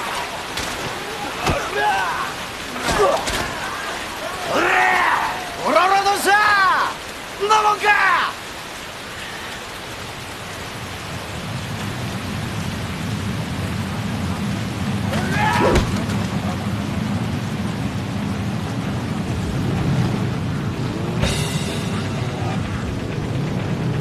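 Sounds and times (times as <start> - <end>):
heavy rain pouring: 0.0 - 24.0
low rumble: 11.3 - 24.0.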